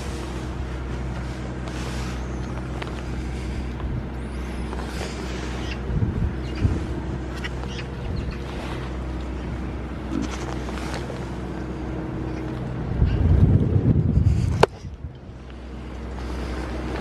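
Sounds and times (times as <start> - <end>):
steady low hum: 0.0 - 17.0
goat muzzle rubbing microphone: 4.3 - 11.2.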